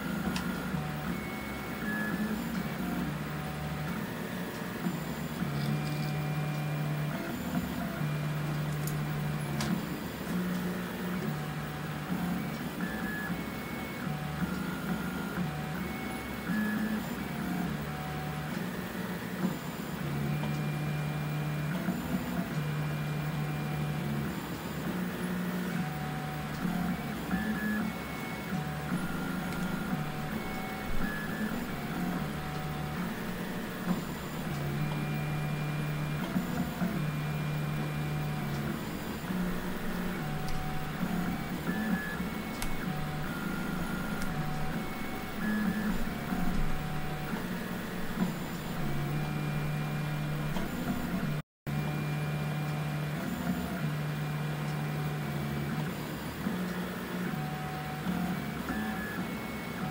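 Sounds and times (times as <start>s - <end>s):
stepper motors whining: 25.9s - 51.4s.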